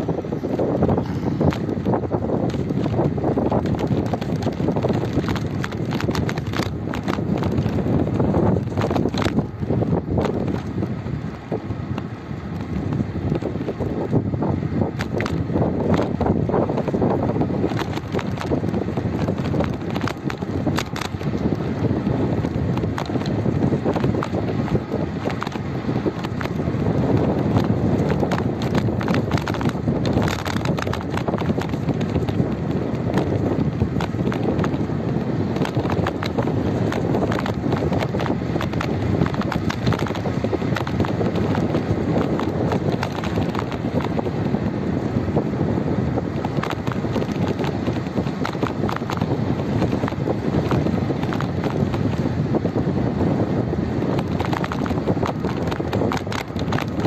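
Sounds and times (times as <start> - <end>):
wind buffeting microphone: 0.0 - 57.0
clicks and rattles: 17.7 - 21.4, 27.6 - 33.4, 54.2 - 57.0.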